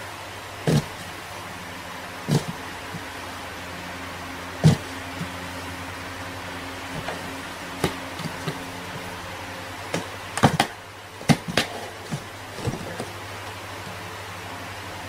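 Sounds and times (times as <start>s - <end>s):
steady low hum: 0.0s - 15.0s
cats scratching cardboard box: 0.6s - 1.2s, 2.1s - 3.3s, 4.1s - 14.0s.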